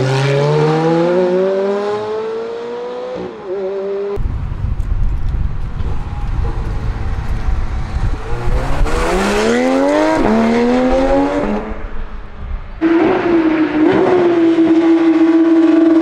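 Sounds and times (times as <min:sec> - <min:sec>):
car engine accelerating hard: 0:06.4 - 0:11.9.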